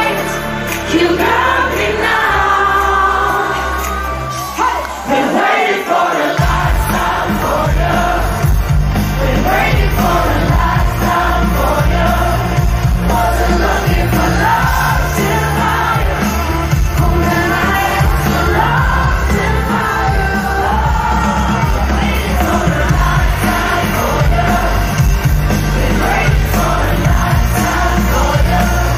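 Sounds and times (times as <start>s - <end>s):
crowd singing and cheering: 0.0s - 28.9s
live pop band: 0.0s - 28.9s
heavy bass: 6.4s - 28.9s.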